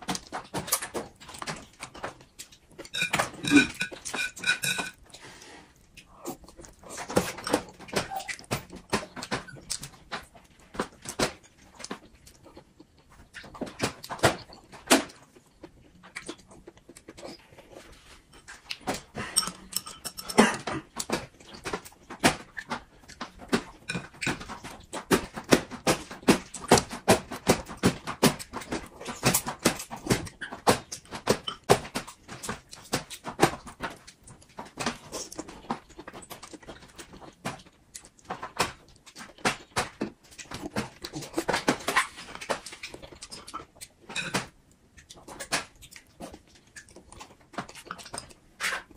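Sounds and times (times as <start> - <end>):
wet chewing and smacking: 0.0 - 48.9
slurping food: 2.9 - 7.6.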